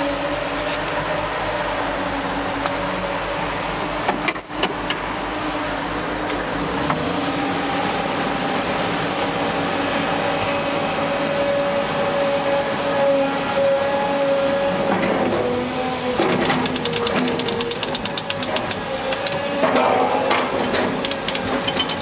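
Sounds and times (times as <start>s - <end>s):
excavator engine running: 0.0s - 22.0s
sharp clicks and knocks: 16.2s - 22.0s.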